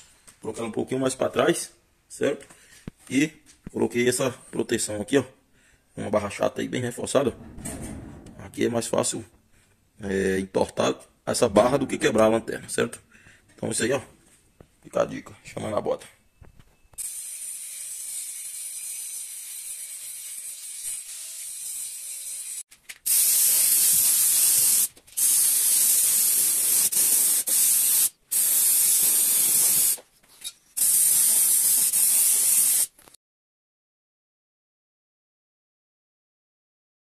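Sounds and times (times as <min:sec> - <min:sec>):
spray paint hissing: 0:23.0 - 0:30.0, 0:30.8 - 0:33.0.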